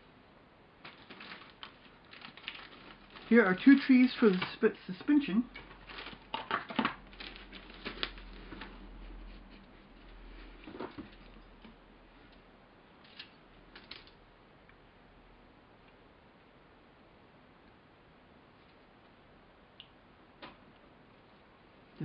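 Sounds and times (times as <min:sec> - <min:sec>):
plastic sprues clicking and rattling: 0:00.8 - 0:08.7.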